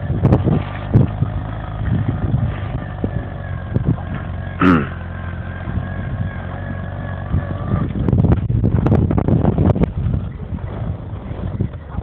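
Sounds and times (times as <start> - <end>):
vehicle engine running under load: 0.0 - 12.0.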